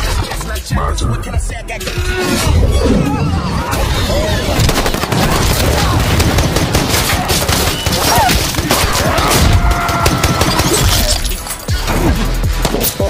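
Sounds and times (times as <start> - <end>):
rapid gunfire: 3.9 - 11.1.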